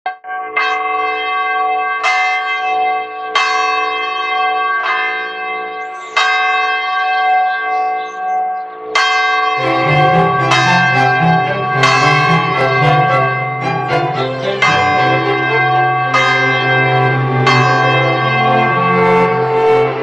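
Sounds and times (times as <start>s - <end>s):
church bell ringing: 0.1s - 20.0s
deeper bell tone: 5.8s - 20.0s.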